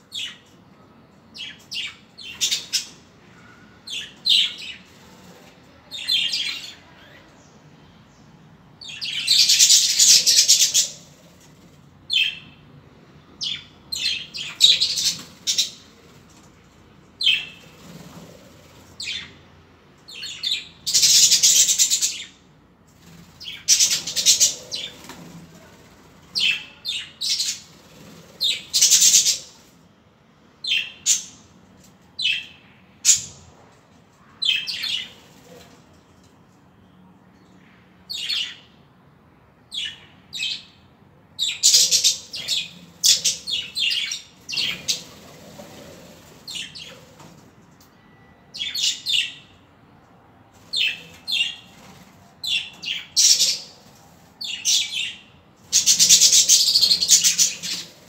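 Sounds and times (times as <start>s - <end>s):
budgerigars chirping and chattering: 8.9s - 11.2s, 13.4s - 15.8s, 20.1s - 22.3s, 23.4s - 25.1s, 28.4s - 29.6s, 41.4s - 47.0s, 52.5s - 53.8s, 54.5s - 58.0s.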